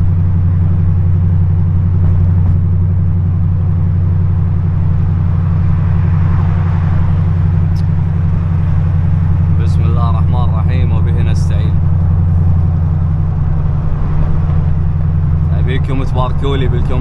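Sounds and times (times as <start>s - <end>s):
car engine running: 0.0s - 17.0s.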